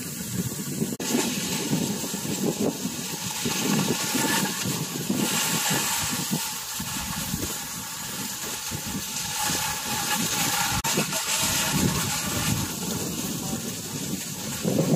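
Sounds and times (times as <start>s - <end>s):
skis sliding over wet snow: 0.0s - 14.9s.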